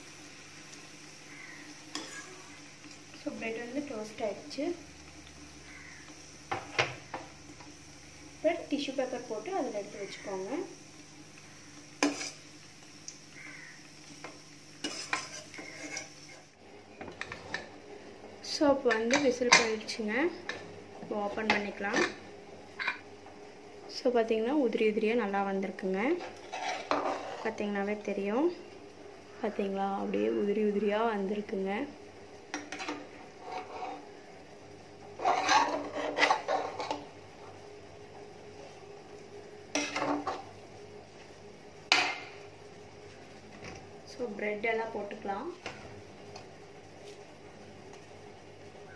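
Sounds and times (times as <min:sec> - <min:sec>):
faint oil sizzle: 0:00.0 - 0:48.9
metal spoon scraping cooking pot: 0:12.0 - 0:12.4, 0:14.8 - 0:16.4, 0:26.4 - 0:27.5, 0:32.7 - 0:34.0, 0:35.2 - 0:37.0
steel ladle clinking and scraping: 0:14.8 - 0:16.2.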